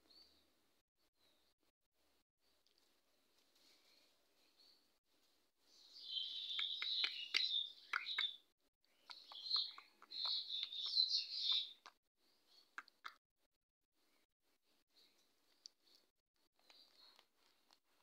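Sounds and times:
small birds twittering: 0:05.7 - 0:12.8.

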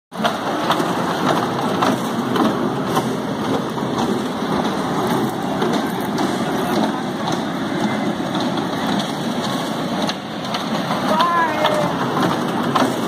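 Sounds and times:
miniature train rumbling on track: 0:00.1 - 0:13.0.

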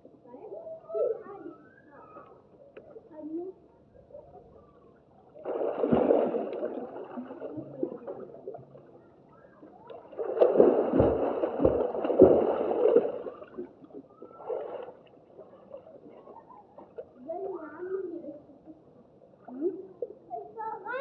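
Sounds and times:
pool water splashing: 0:04.6 - 0:17.8.

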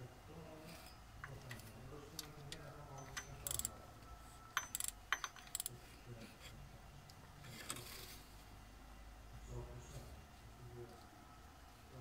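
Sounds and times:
metallic tool clinks: 0:02.9 - 0:03.7, 0:04.5 - 0:05.6
ratchet wrench clicking: 0:03.0 - 0:03.7, 0:04.6 - 0:05.7.

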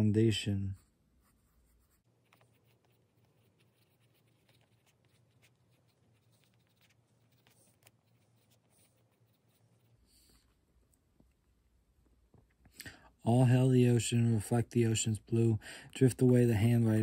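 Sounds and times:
pencil scratching on paper: 0:00.7 - 0:10.5.

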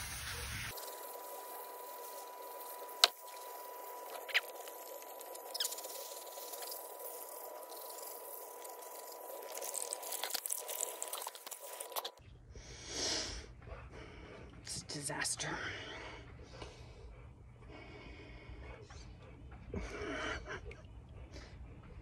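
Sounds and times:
hose water spraying on rocks: 0:00.0 - 0:12.1.

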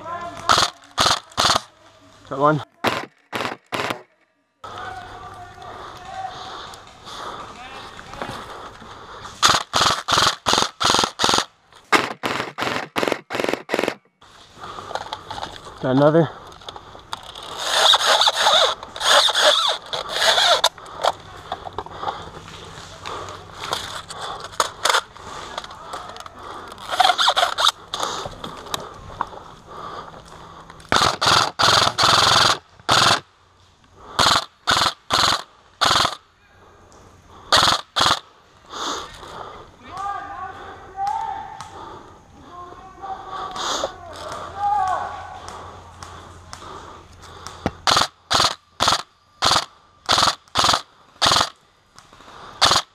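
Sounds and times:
airsoft rifle rapid shots: 0:00.4 - 0:01.7, 0:02.8 - 0:04.1, 0:09.4 - 0:14.0, 0:17.5 - 0:20.7, 0:26.9 - 0:27.8, 0:30.9 - 0:33.3, 0:34.2 - 0:36.2, 0:37.5 - 0:38.2, 0:47.8 - 0:51.6, 0:52.6 - 0:52.9.

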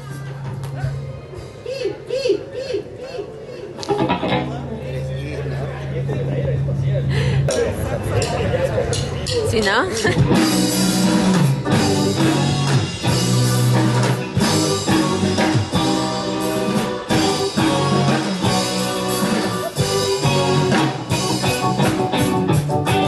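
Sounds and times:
electric guitars: 0:03.7 - 0:04.9, 0:06.6 - 0:23.0
bass guitar: 0:03.8 - 0:23.0
drum kit: 0:08.2 - 0:23.0.

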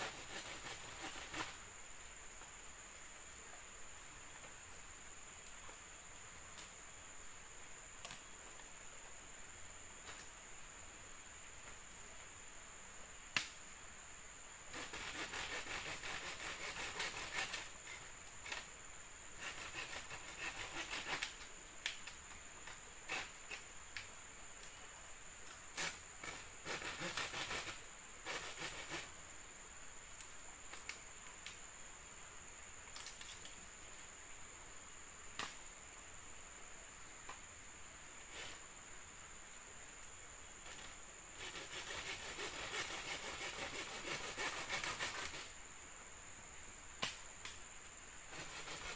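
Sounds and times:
bamboo scraping and rubbing: 0:00.0 - 0:01.6, 0:14.7 - 0:17.7, 0:19.4 - 0:21.3, 0:23.1 - 0:23.6, 0:25.8 - 0:29.1, 0:40.7 - 0:45.5, 0:48.3 - 0:48.9
high insect drone: 0:00.0 - 0:48.9.

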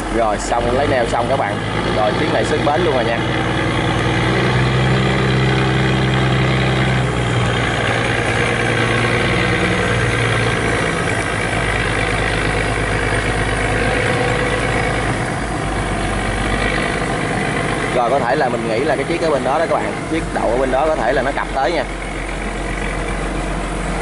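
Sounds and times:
barge diesel engine running: 0:00.0 - 0:24.0.

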